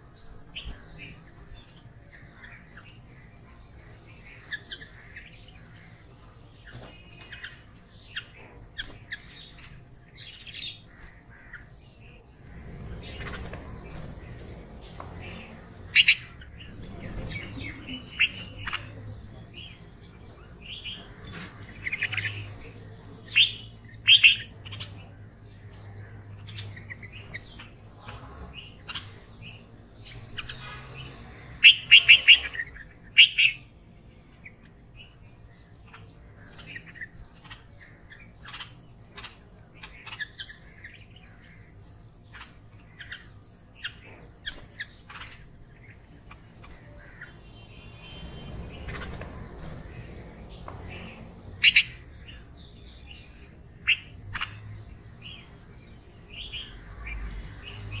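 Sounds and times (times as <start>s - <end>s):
bird chirping: 0.0s - 58.0s.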